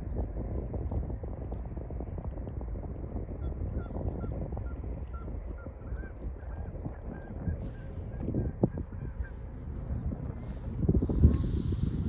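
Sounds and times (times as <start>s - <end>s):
wind rumble on microphone: 0.0s - 12.0s
water birds calling: 2.4s - 12.0s.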